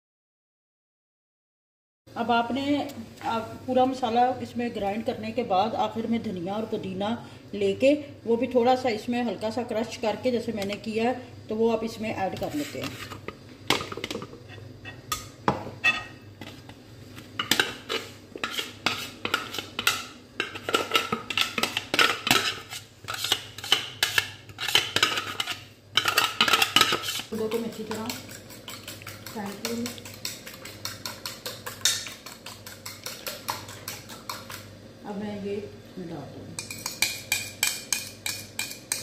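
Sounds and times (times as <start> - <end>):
spoon scraping kitchen bowls: 12.4 - 13.4, 15.8 - 16.7, 17.4 - 34.7, 36.6 - 39.0
spoon beating egg in bowl: 17.4 - 34.7, 36.6 - 39.0.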